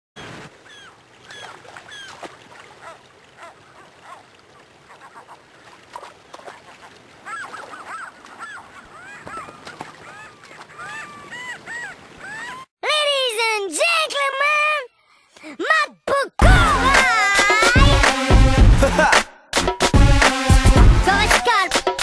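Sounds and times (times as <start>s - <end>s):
gulls calling: 0.2s - 12.7s.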